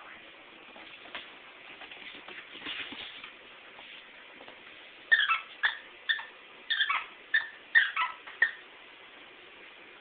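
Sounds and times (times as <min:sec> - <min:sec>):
squeaky dog toy squeaking: 0:05.1 - 0:08.6.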